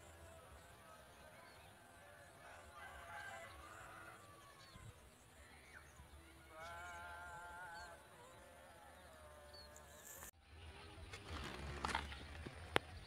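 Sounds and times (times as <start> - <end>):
distant bleat-like animal call: 6.5 - 8.1.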